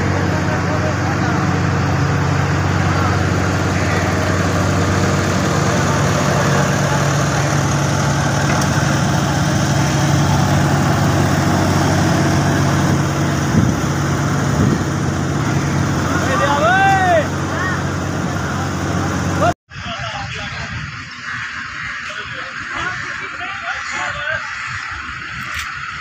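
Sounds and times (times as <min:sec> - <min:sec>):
road roller engine humming: 0:00.0 - 0:19.6.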